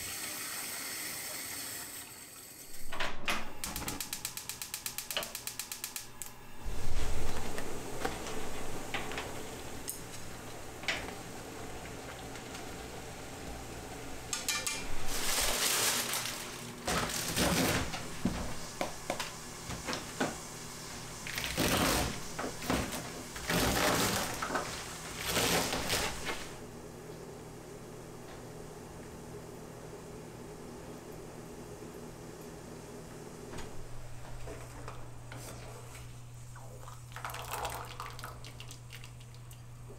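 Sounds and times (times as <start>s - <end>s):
plastic packaging rustling: 14.8s - 18.7s.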